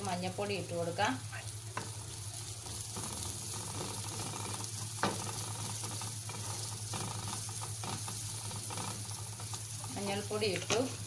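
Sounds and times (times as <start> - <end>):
onions sizzling in oil: 0.0 - 11.0
wooden spatula scraping pan: 2.8 - 11.0.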